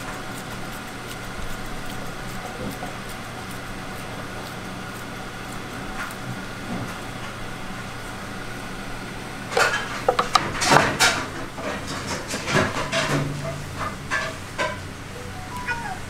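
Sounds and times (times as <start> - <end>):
steady equipment hum: 0.0 - 16.0
utensils and dishes clattering: 9.5 - 14.9.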